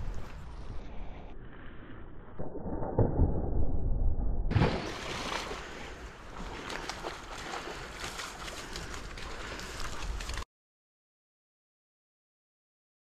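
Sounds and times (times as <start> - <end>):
water rushing: 4.5 - 10.3
dog splashing through stream: 4.5 - 10.4.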